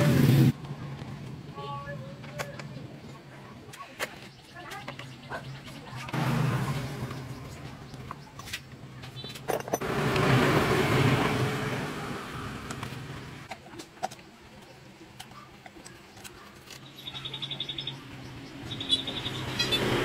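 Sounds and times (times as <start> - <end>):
loud rushing noise: 0.0 - 0.6, 9.8 - 13.4.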